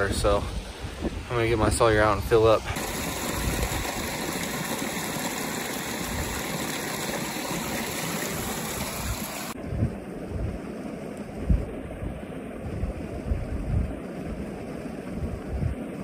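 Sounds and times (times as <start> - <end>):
creek water rushing and splashing: 2.6 - 9.6.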